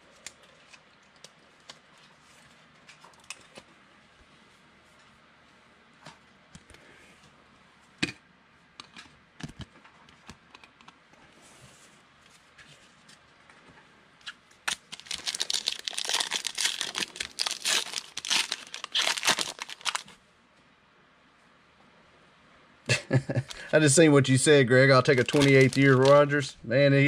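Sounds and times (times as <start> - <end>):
plastic wrapper crinkling and tearing: 14.6 - 20.2, 25.0 - 26.5.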